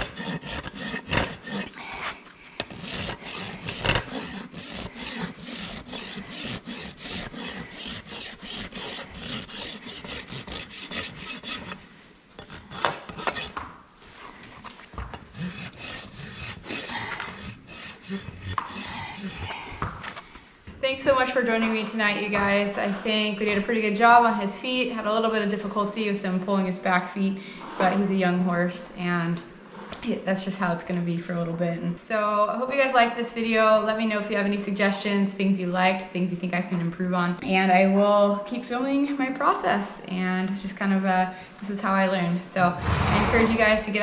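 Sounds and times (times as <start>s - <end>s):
rasp filing hoof: 0.0s - 13.6s, 14.3s - 20.2s, 42.8s - 44.0s.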